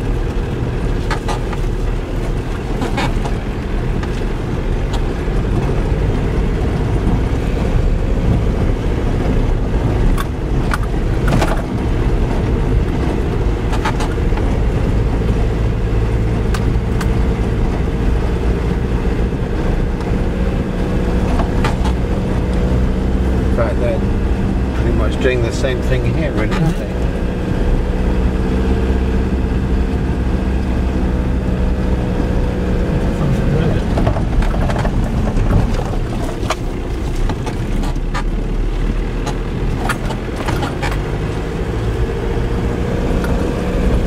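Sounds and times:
car engine and tyres rumbling: 0:00.0 - 0:44.0
sharp knocks and rattles: 0:33.9 - 0:38.4.

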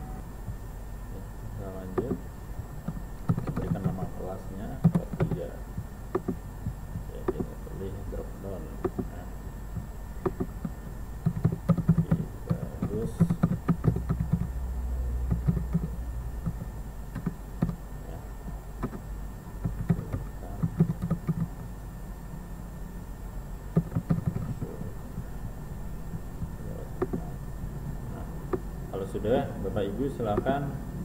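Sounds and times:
steady low hum: 0:00.0 - 0:31.0
computer keyboard typing: 0:01.9 - 0:02.2, 0:02.8 - 0:04.1, 0:04.7 - 0:05.5, 0:06.1 - 0:07.6, 0:08.8 - 0:09.2, 0:09.8 - 0:14.6, 0:15.2 - 0:17.8, 0:18.8 - 0:21.7, 0:23.7 - 0:25.3, 0:26.1 - 0:27.3.

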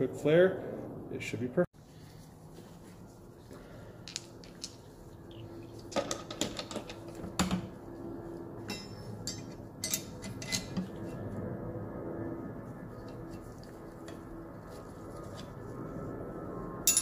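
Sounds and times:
metal parts clicking and clinking: 0:08.7 - 0:10.8.

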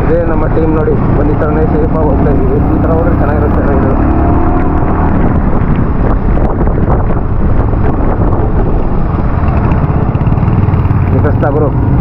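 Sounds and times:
motorcycle engine running: 0:00.0 - 0:12.0
wind buffeting microphone: 0:00.0 - 0:12.0.

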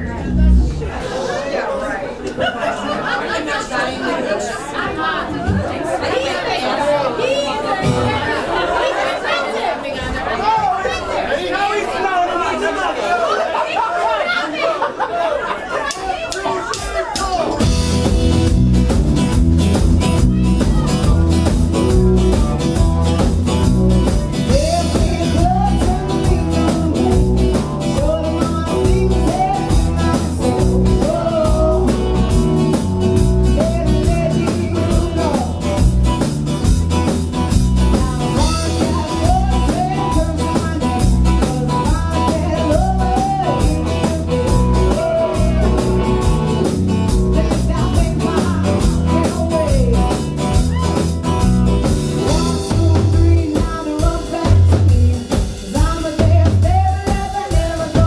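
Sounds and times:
electric bass: 0:00.0 - 0:01.0, 0:17.6 - 0:57.1
drum kit: 0:16.8 - 0:58.0
electric guitars: 0:17.5 - 0:58.0.

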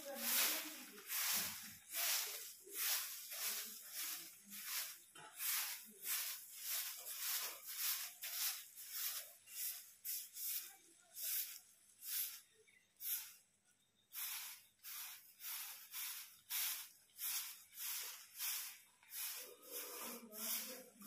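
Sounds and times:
broom swishing on stone: 0:00.0 - 0:13.4, 0:14.1 - 0:21.0.

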